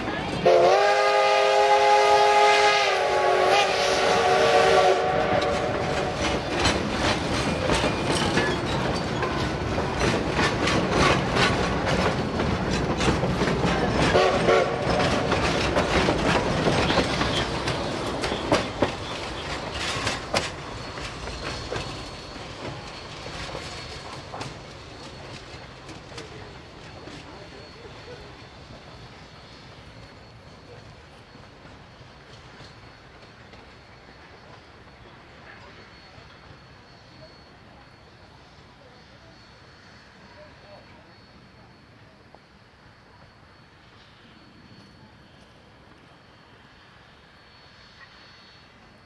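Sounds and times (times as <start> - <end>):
steam locomotive whistle: 0.4 - 6.5, 13.9 - 15.6
train wheels clicking over rail joints: 5.0 - 37.9.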